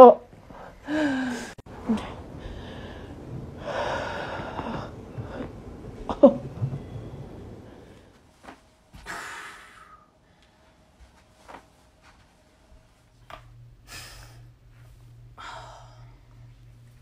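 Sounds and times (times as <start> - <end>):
person breathing out hard and gasping: 0.8 - 1.6.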